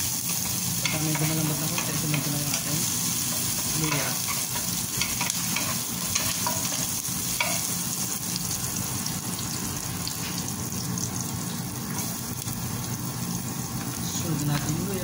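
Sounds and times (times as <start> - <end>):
onions sizzling in oil: 0.0 - 15.0
spatula scraping a pan: 0.2 - 7.8.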